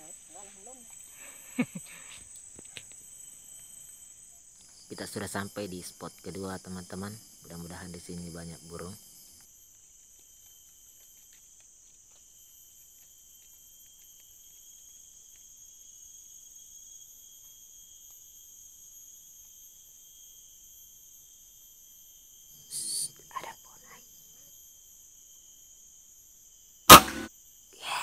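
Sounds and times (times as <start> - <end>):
forest insects chorus: 0.0 - 28.0.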